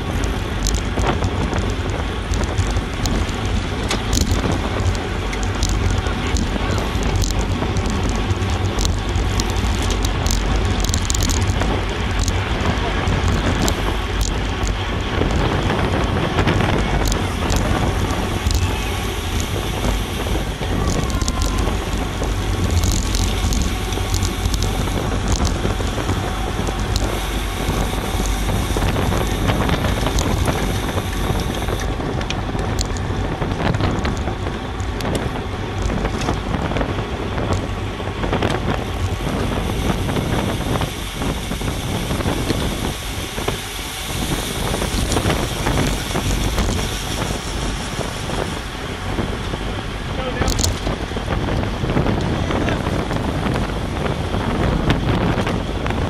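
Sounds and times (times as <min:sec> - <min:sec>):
tyre and road noise: 0:00.0 - 0:56.0
wind blasting across microphone: 0:00.0 - 0:56.0
short clicks and rattles: 0:00.2 - 0:37.7, 0:50.4 - 0:51.6.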